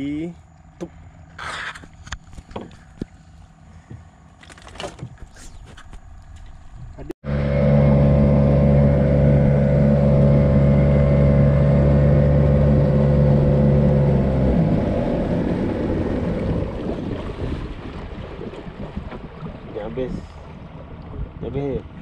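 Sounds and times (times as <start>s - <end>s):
wind: 0.0s - 22.0s
outboard motor running: 0.6s - 22.0s
water rushing: 7.2s - 22.0s.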